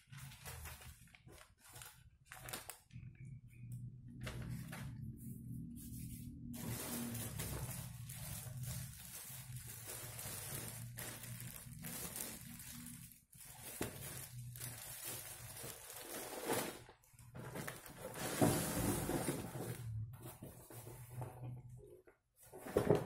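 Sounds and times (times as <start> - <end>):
plastic wrapping crinkling: 0.0 - 3.7, 6.0 - 20.0.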